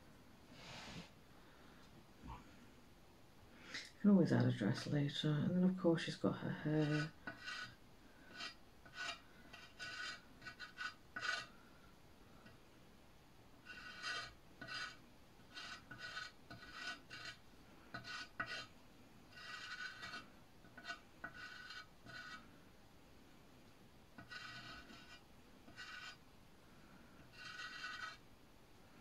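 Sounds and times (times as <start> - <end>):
chalk scraping on plant pot: 6.8 - 11.5, 13.6 - 18.7, 19.3 - 22.4, 24.2 - 26.2, 27.2 - 28.2.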